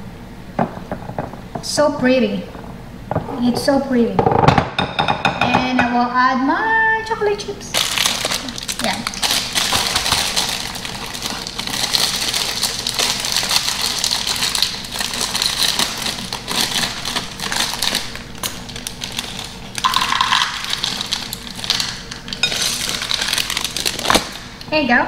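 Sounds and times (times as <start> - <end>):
plastic bag crinkling: 7.7 - 24.6
chocolate chips rattling into bowl: 7.8 - 24.4.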